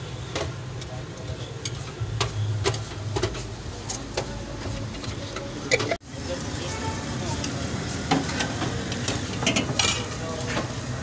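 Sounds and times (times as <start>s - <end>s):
street background rumble: 0.0s - 11.0s
utensils clinking on plates: 7.4s - 10.7s.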